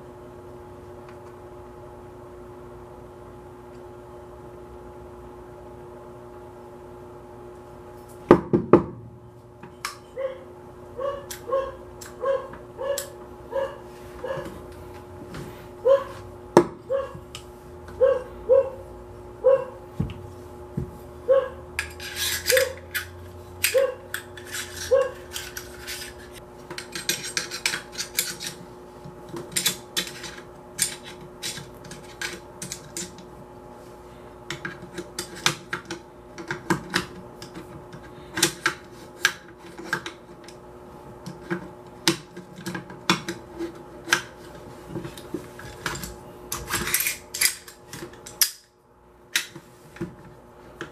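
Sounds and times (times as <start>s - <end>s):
metal gun parts clicking: 45.9s - 48.7s.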